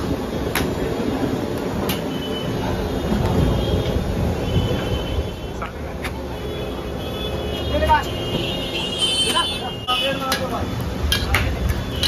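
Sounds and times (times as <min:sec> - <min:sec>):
low rumble of street noise: 0:00.0 - 0:12.0.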